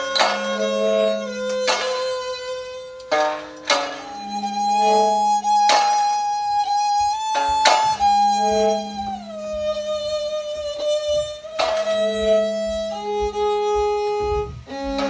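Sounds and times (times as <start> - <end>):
sharp struck or plucked attacks: 0.0 - 9.8
bowed violin-like string tones: 0.0 - 15.0
low drone tone: 0.0 - 15.0.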